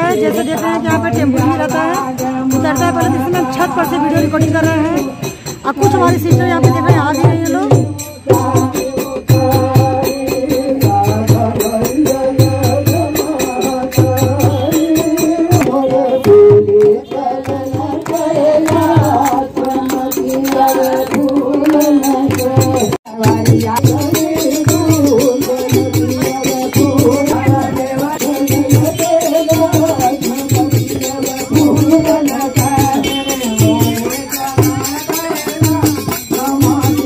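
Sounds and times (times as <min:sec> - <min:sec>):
group devotional singing: 0:00.0 - 0:37.0
steady drum beat: 0:00.0 - 0:37.0
hand clapping: 0:15.5 - 0:23.0.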